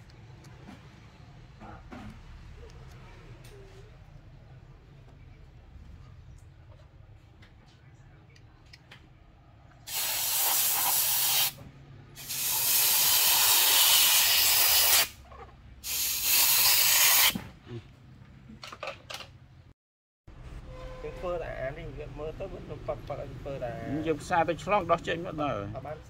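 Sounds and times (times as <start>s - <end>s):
pressurised spray hissing: 9.9s - 11.6s, 12.2s - 15.2s, 15.8s - 17.4s.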